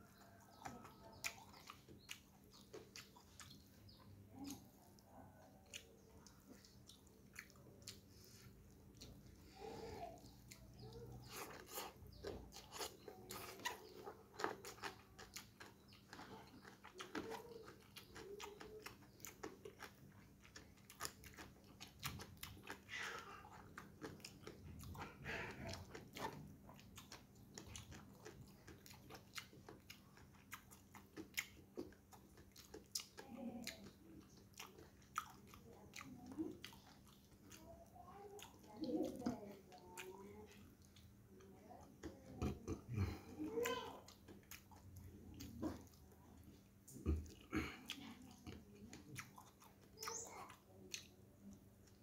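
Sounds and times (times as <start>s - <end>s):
chewing: 0.0s - 52.0s
crunching of fried fish: 10.4s - 37.6s
wet mouth clicks: 39.8s - 43.3s.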